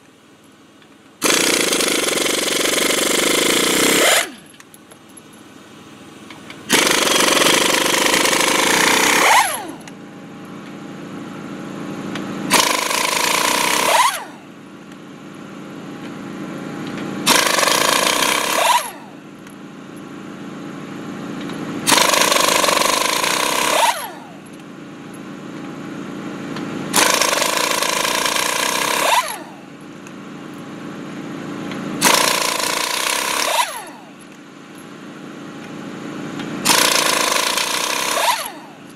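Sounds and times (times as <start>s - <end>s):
impact wrench hammering rattle: 0.8s - 5.5s, 6.3s - 10.8s, 12.0s - 15.1s, 16.0s - 20.2s, 21.4s - 25.9s, 26.5s - 38.9s.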